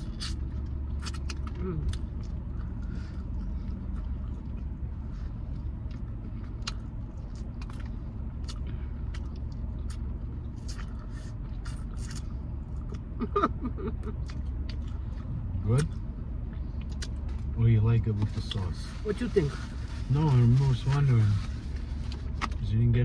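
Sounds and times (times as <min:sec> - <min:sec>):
crunchy chewing of chicken wings: 0:00.0 - 0:13.1, 0:14.2 - 0:16.0
car cabin hum: 0:00.0 - 0:23.0.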